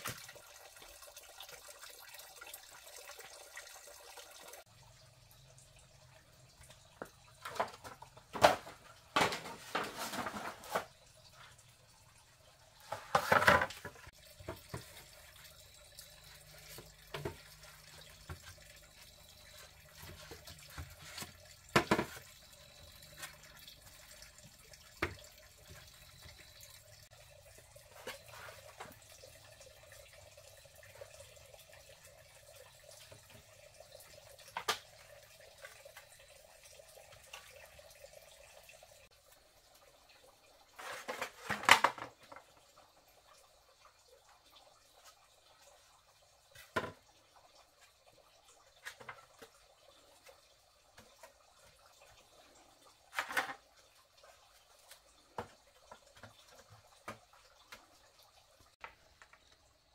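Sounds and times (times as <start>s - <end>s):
bamboo poles knocking and clattering: 7.0s - 11.0s, 12.8s - 15.1s, 16.6s - 18.9s, 19.6s - 23.5s, 34.4s - 35.0s, 40.8s - 42.6s, 46.5s - 47.0s, 48.8s - 49.6s, 53.1s - 53.7s.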